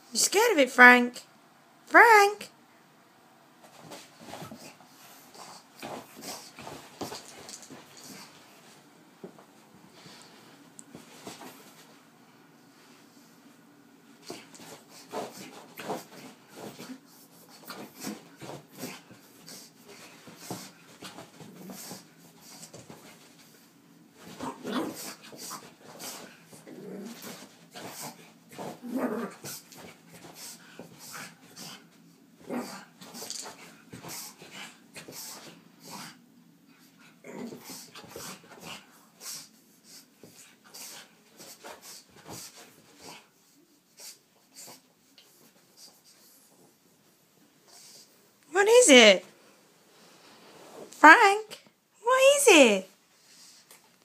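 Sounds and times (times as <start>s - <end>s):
puppy scuffing on carpet: 3.6s - 12.1s, 49.9s - 51.0s.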